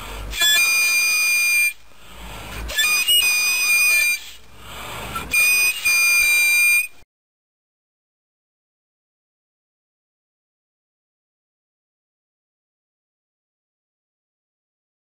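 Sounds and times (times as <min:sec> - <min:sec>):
high-pitched whistle toots: 0:00.3 - 0:01.8, 0:02.6 - 0:04.5, 0:05.2 - 0:07.1.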